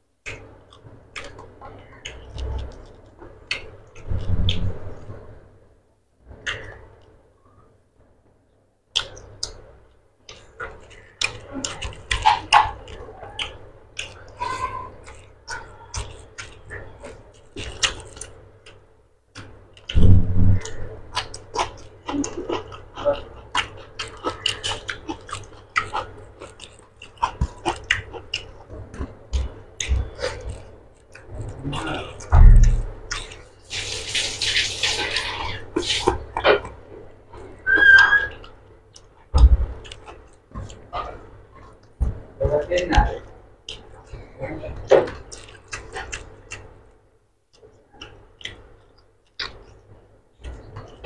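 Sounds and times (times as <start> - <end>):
mouth eating sounds: 10.2 - 18.8, 19.4 - 46.7, 47.6 - 51.0
fingers kneading wet food: 10.2 - 46.8.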